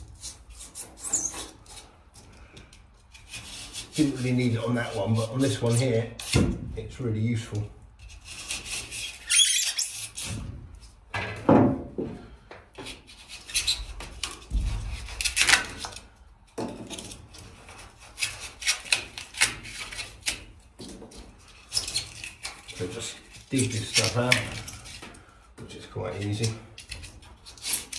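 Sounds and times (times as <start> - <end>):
knife sawing through foam: 3.1 - 5.6, 8.0 - 10.2, 17.6 - 20.4, 27.4 - 27.9.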